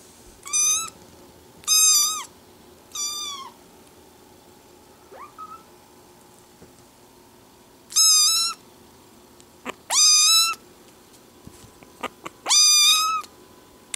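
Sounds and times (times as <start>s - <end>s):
kitten meowing: 1.6s - 2.3s, 2.9s - 3.6s, 5.1s - 5.7s, 9.7s - 10.6s, 12.0s - 13.3s.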